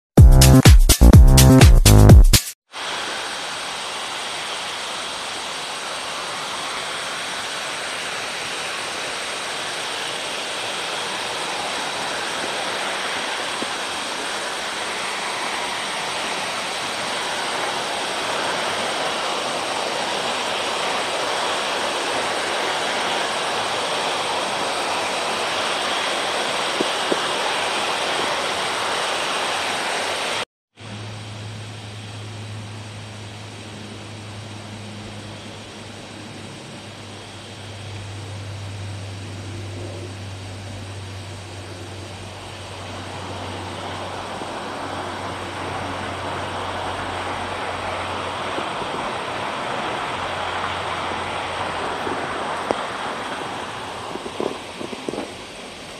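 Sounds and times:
steady hiss: 2.7s - 55.9s
low hum: 30.8s - 55.5s.

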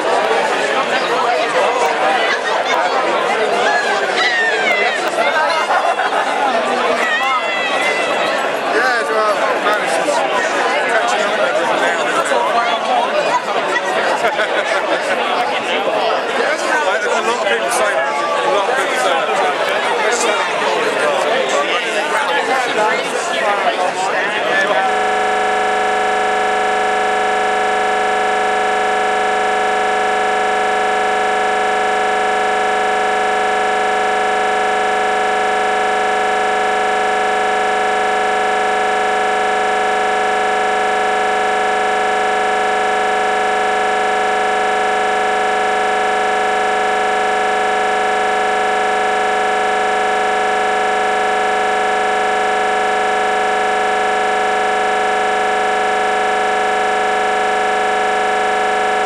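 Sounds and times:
electronic drone: 24.8s - 59.0s.

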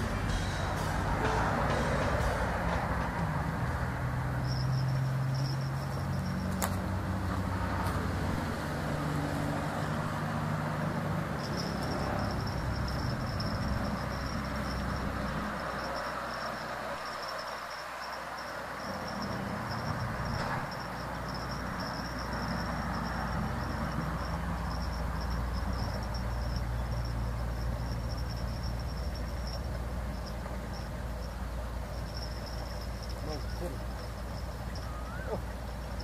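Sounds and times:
low steady rumble: 0.0s - 17.8s
insects trilling: 0.0s - 36.0s.

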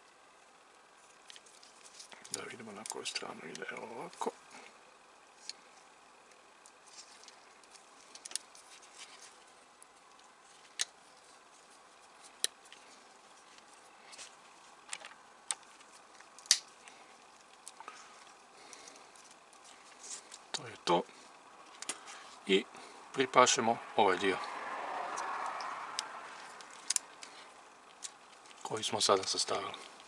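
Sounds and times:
gloved handling rustle: 0.1s - 23.2s, 24.2s - 30.0s
plastic parts clicking: 26.0s - 27.3s.

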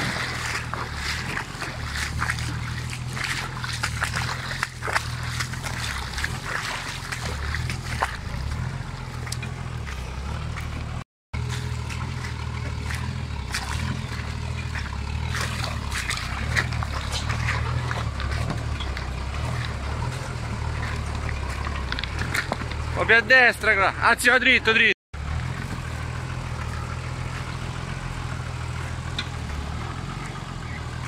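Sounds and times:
tyres crunching on rocks: 0.0s - 23.2s, 25.2s - 31.0s
water splashing: 0.0s - 23.8s
truck engine droning: 0.0s - 31.0s.

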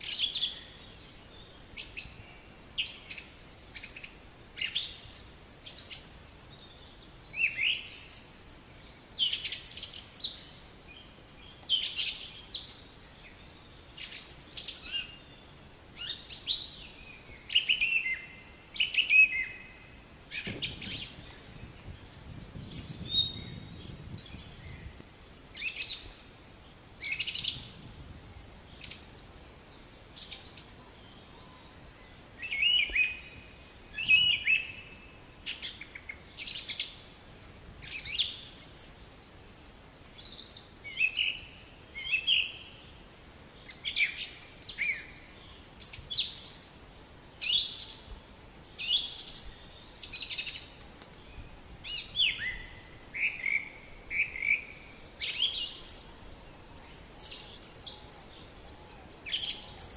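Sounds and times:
chickadee chirping: 20.3s - 25.0s
faint low rumble: 20.3s - 25.6s.

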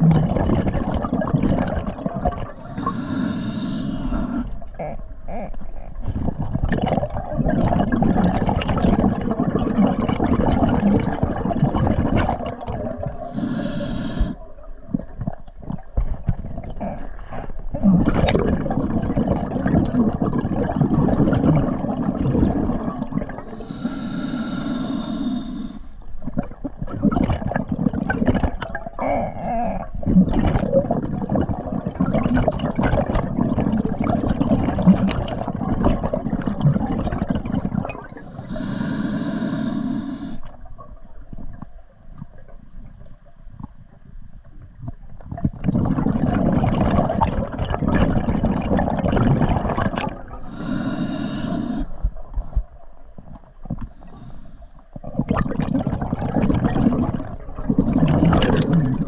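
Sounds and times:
exhaled bubbles gurgling: 0.0s - 59.0s
hissing regulator inhalations: 2.6s - 4.6s, 13.2s - 14.4s, 23.5s - 26.0s, 38.1s - 40.5s, 50.4s - 52.6s, 53.8s - 54.8s.

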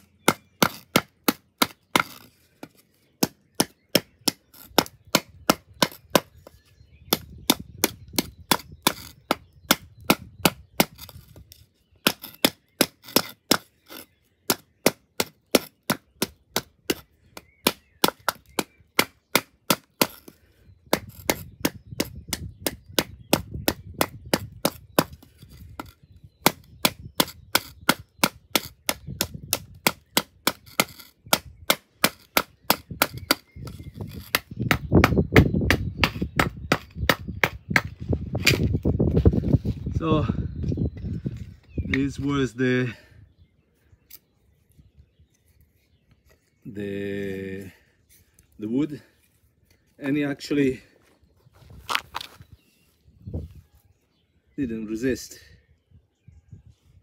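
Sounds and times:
knife striking hard wood: 0.0s - 6.5s, 7.1s - 38.8s.

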